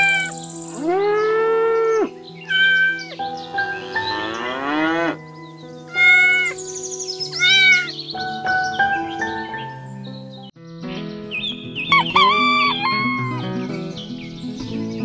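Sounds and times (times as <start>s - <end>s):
cat meowing: 0.0s - 0.4s, 2.5s - 3.2s, 5.9s - 6.6s, 7.3s - 8.0s, 11.9s - 13.4s
long animal call: 0.0s - 3.2s, 5.9s - 6.6s, 7.4s - 8.0s, 11.9s - 13.5s
soft background music: 0.0s - 15.0s.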